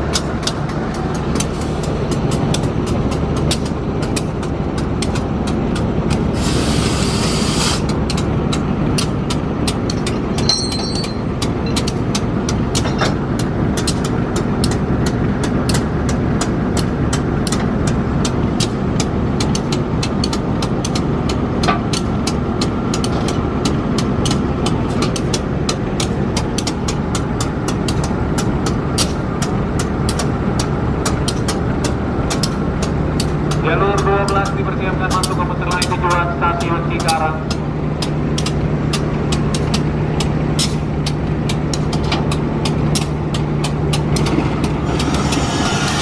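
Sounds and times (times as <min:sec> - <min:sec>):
diesel locomotive idling: 0:00.0 - 0:46.0
air hissing: 0:06.3 - 0:07.9, 0:44.8 - 0:46.0.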